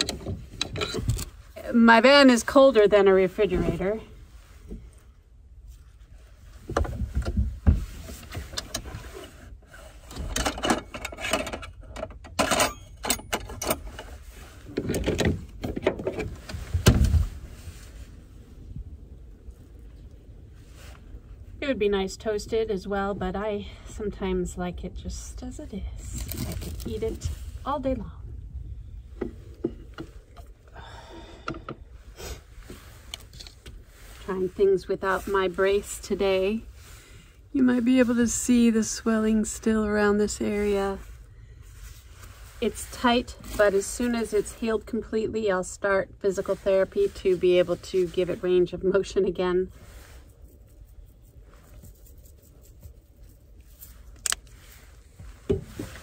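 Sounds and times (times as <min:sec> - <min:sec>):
scraping rustle: 0:00.0 - 0:11.6, 0:13.4 - 0:21.6, 0:25.3 - 0:28.0, 0:31.9 - 0:56.0
low rumble: 0:13.9 - 0:56.0.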